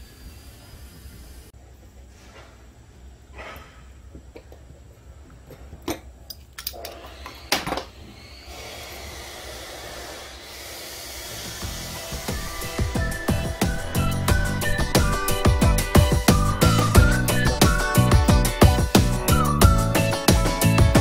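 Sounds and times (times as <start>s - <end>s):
hiss: 0.0s - 1.5s.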